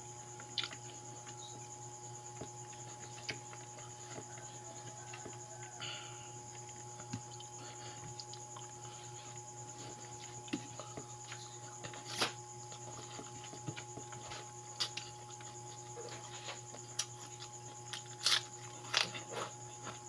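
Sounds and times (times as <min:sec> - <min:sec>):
steady low hum: 0:00.0 - 0:20.0
person chewing food: 0:00.4 - 0:01.4, 0:02.3 - 0:05.8, 0:06.5 - 0:20.0.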